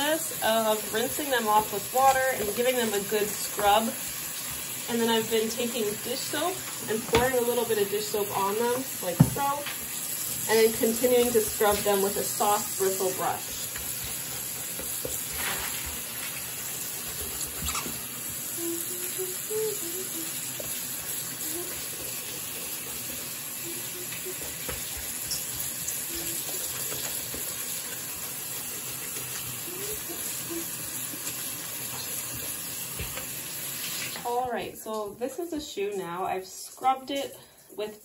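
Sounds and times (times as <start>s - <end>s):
tap water running into sink: 0.0s - 35.1s
brush scrubbing fabric: 10.5s - 18.0s.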